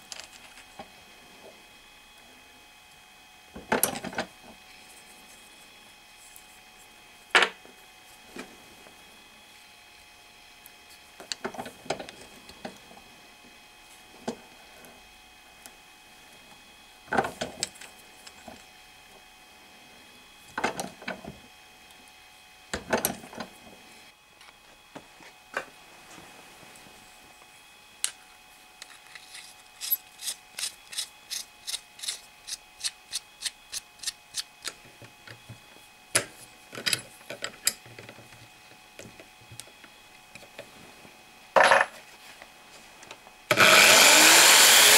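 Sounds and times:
ratchet-like clicks: 29.2s - 34.5s.

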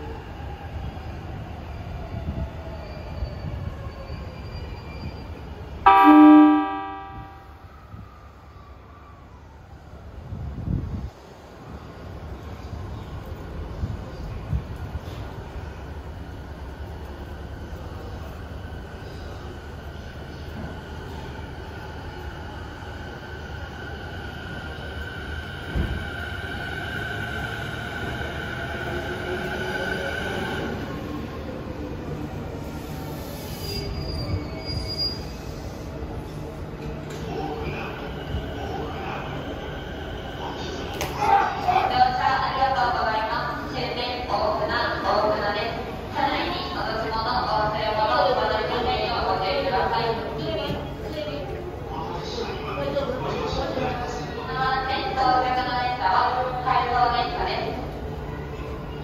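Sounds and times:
electric train whine: 0.2s - 10.4s
electric train humming: 5.7s - 8.1s
train horn blast: 5.9s - 7.6s.

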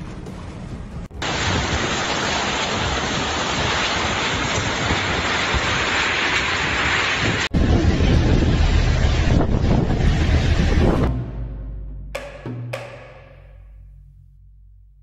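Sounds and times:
strong storm wind roaring: 1.1s - 11.2s.

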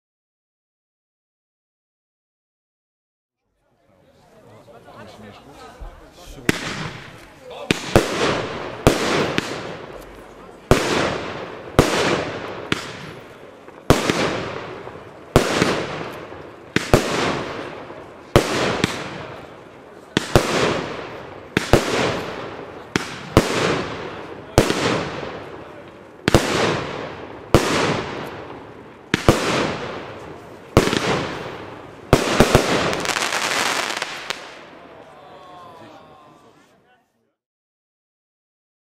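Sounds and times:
firework bangs: 6.4s - 34.8s.

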